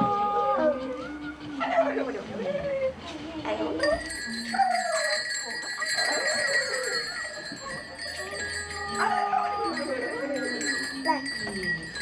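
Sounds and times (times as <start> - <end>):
bell-like ringing tones: 3.8 - 12.0.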